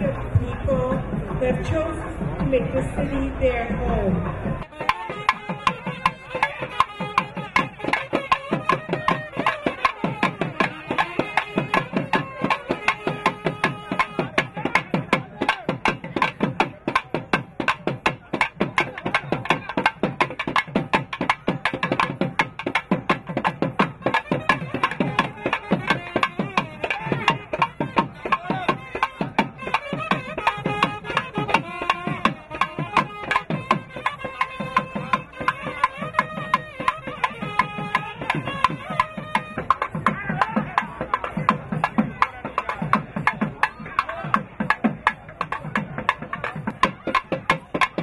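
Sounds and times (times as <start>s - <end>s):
barrel drum beating fast rhythm: 0.0s - 48.0s
reed instrument melody: 4.6s - 15.1s, 23.9s - 40.2s.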